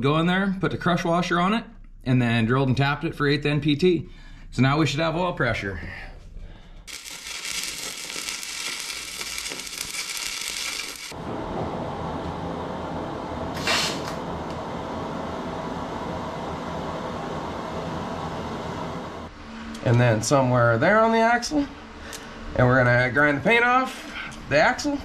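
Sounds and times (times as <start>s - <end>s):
welding arc crackling: 6.9s - 11.2s.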